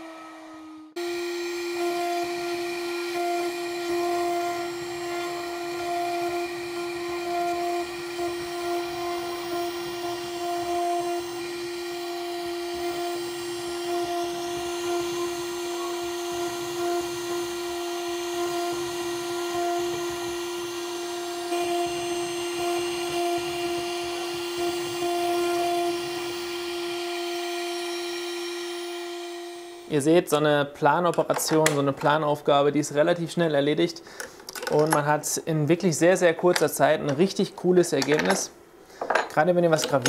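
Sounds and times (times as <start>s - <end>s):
bit cutting wood: 0.0s - 29.9s
router spindle whining: 0.0s - 30.0s.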